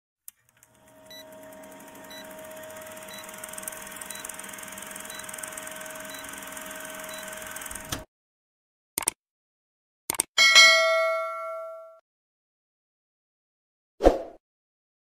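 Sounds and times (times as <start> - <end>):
film projector whirring: 0.4 - 8.1.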